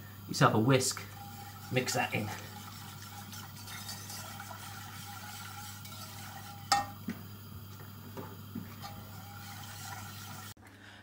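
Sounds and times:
wire whisk stirring in pot: 0.8s - 7.0s, 8.7s - 10.6s
whisk clacking against pot: 1.1s - 7.1s, 8.6s - 10.6s.

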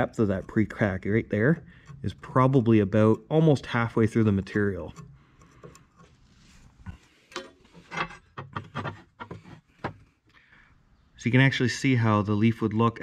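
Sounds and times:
metal scrapes and taps: 0.0s - 2.8s, 4.5s - 10.1s.

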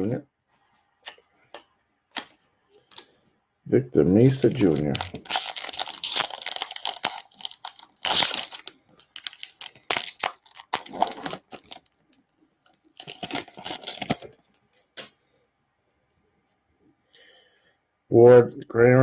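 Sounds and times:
wrappers crinkling: 4.2s - 14.4s.

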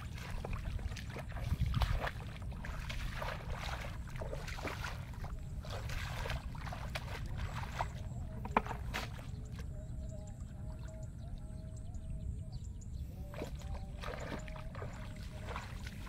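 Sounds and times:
bare feet splashing in mud: 0.0s - 9.7s, 13.3s - 16.0s.

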